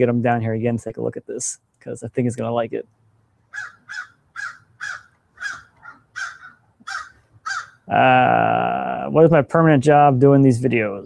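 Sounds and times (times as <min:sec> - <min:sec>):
crow cawing: 0:03.5 - 0:07.9.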